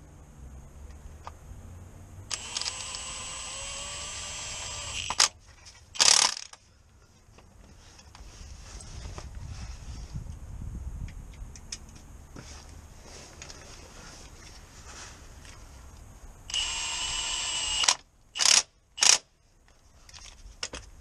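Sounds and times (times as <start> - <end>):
power ratchet motor whine: 2.3 - 5.3, 6.0 - 6.5, 16.5 - 19.2.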